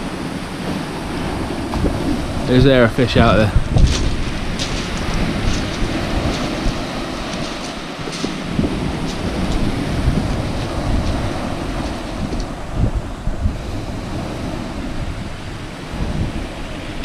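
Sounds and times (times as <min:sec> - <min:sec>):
wind buffeting microphone: 0:00.0 - 0:17.0
waves breaking on shingle: 0:00.1 - 0:17.0.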